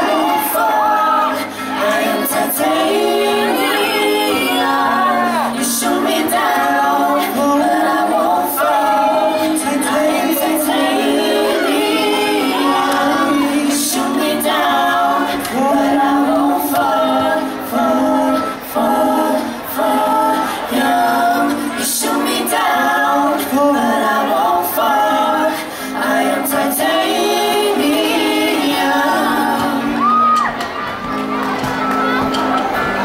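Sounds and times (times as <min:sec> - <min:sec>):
female singers in close harmony: 0:00.0 - 0:30.5
light band accompaniment: 0:28.3 - 0:33.0.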